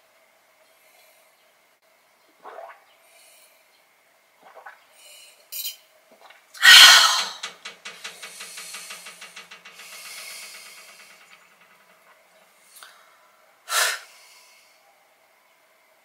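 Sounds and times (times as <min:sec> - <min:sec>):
woman exhaling ahh: 0:06.6 - 0:11.0, 0:13.7 - 0:14.7
rattling pulsing sigh: 0:06.6 - 0:14.8.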